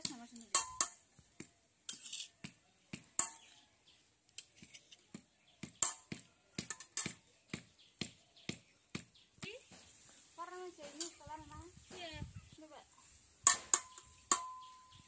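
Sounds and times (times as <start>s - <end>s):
spoon tapping steel bowl: 0.0s - 1.0s, 13.5s - 14.7s
spoon scraping stone: 1.8s - 2.5s.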